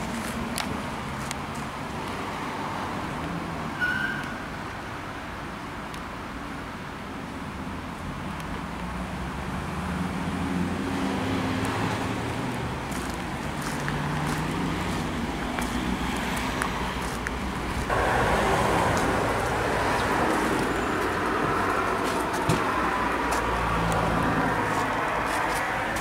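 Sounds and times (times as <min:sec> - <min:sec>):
steady rushing noise: 0:14.7 - 0:26.0
vehicle engine running: 0:17.0 - 0:26.0.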